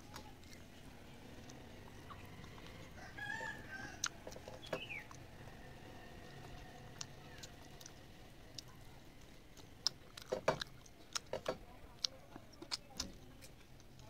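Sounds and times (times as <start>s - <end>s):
chewing smacks: 0.1s - 3.0s, 4.0s - 5.4s, 6.1s - 14.0s.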